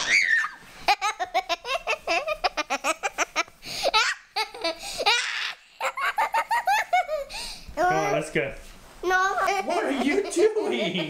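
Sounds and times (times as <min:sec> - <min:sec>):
girl giggling: 0:00.8 - 0:07.4
breathy gasps: 0:07.3 - 0:07.7.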